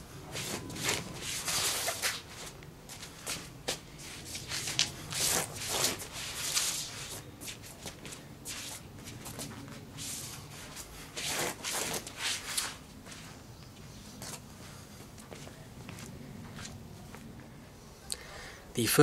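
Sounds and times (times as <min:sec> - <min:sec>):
footsteps scuffing on stone: 0:15.0 - 0:17.3.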